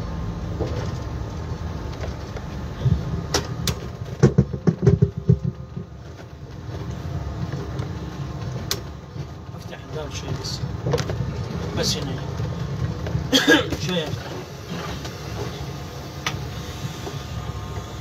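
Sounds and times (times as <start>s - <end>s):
vehicle driving on road: 0.0s - 18.0s
loud knocks and rattles: 3.3s - 6.2s.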